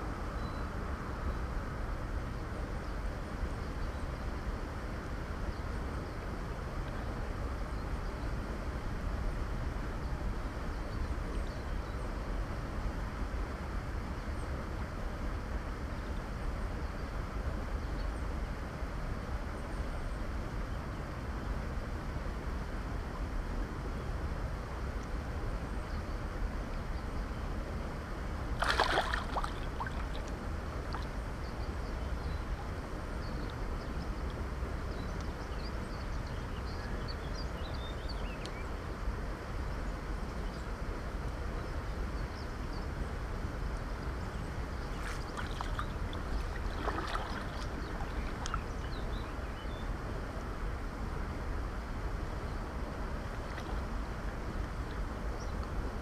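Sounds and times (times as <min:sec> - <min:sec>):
river water flowing and sloshing: 0:00.0 - 0:56.0
steady low rumble: 0:00.0 - 0:56.0
water splashes: 0:28.5 - 0:31.2, 0:44.8 - 0:48.9, 0:53.4 - 0:53.9.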